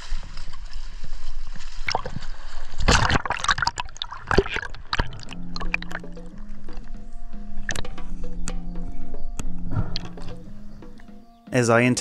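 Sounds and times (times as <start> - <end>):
splashes and bubbling: 0.0 - 7.0, 7.6 - 8.0
sea water sloshing: 0.0 - 8.6
music: 4.9 - 12.0.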